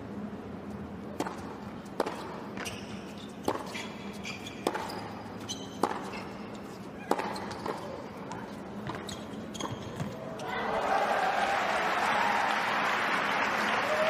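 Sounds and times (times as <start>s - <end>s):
steady arena hum: 0.0s - 14.0s
tennis ball strikes: 1.2s - 2.4s, 4.6s - 5.0s, 5.8s - 6.2s, 7.0s - 7.8s
shoe squeaks: 2.6s - 10.6s.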